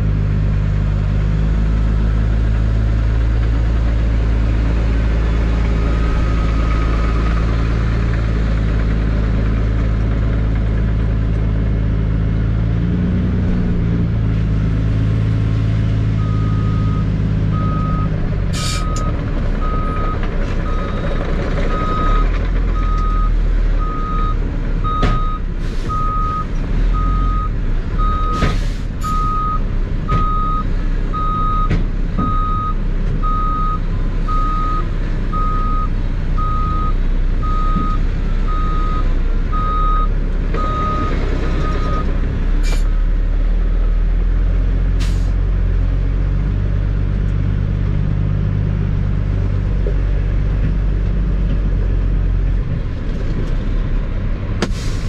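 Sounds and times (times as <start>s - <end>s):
diesel truck engine: 0.0s - 55.0s
sharp air hisses: 54.6s - 55.0s.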